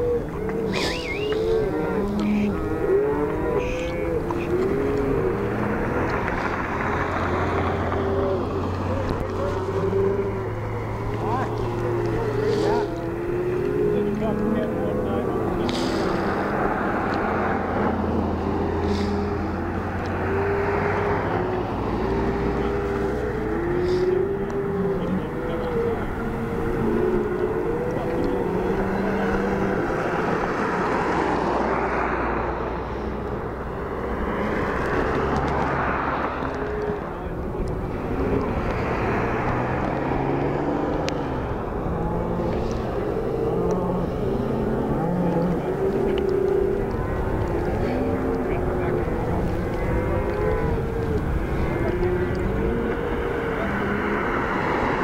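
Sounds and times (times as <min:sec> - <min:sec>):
cars passing on a highway: 0:00.0 - 0:55.0
low rumbling noise: 0:00.0 - 0:55.0
faint indistinct voices: 0:32.6 - 0:55.0.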